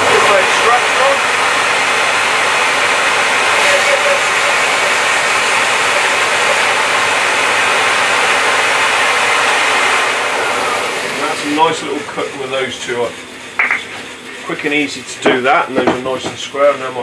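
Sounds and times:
bandsaw cutting wood: 0.0s - 13.1s.

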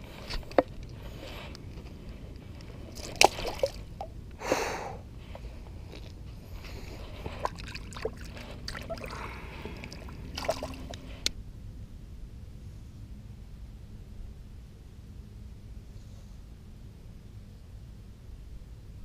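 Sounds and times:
water splash: 3.0s - 4.1s, 7.4s - 11.0s.

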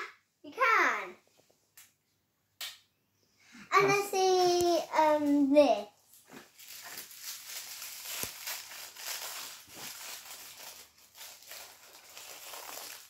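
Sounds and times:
wrapper crinkling and tearing: 6.1s - 13.0s.

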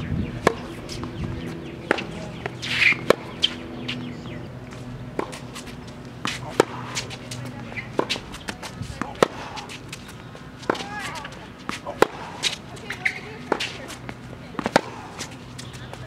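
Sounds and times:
racquets hitting tennis ball: 0.0s - 16.0s
steady low hum: 0.0s - 16.0s
tennis ball bouncing: 0.0s - 16.0s
shoe squeak: 9.7s - 14.2s, 15.2s - 16.0s.

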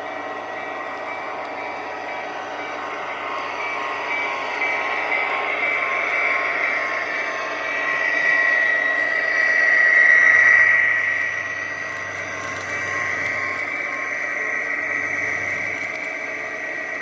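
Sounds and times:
model locomotive whine: 0.0s - 17.0s
wheels rolling on track: 7.0s - 17.0s.

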